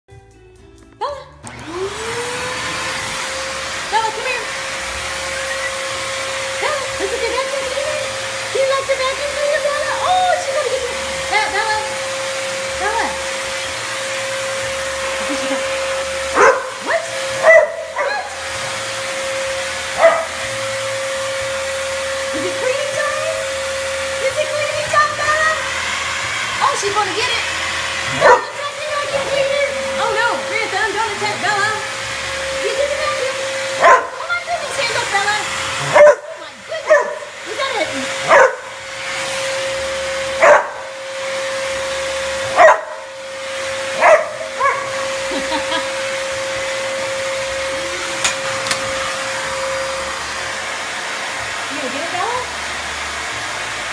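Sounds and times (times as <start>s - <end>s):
vacuum cleaner whine: 1.4s - 53.9s
dog barking: 16.4s - 18.3s, 20.0s - 20.4s, 28.1s - 28.6s, 33.8s - 34.2s, 35.8s - 37.3s, 38.3s - 38.7s, 40.4s - 40.9s, 42.5s - 43.0s, 44.0s - 45.0s.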